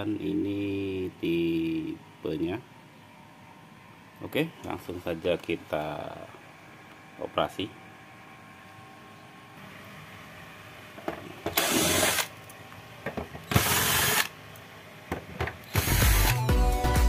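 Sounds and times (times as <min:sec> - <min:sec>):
drill spinning screws out: 0:11.5 - 0:12.3, 0:13.5 - 0:14.3, 0:15.6 - 0:16.4
music: 0:15.8 - 0:17.0.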